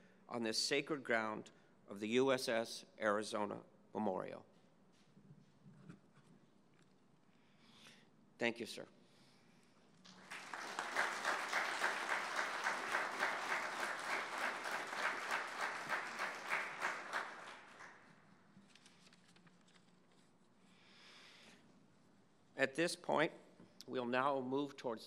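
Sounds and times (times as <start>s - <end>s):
audience applauding: 10.0s - 18.1s.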